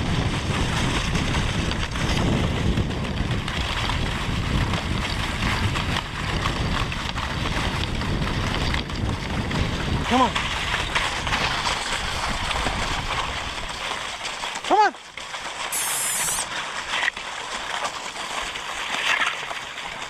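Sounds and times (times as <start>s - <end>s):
wind buffeting microphone: 0.0s - 13.9s
sled runners scraping on snow: 0.0s - 14.6s, 15.2s - 20.0s.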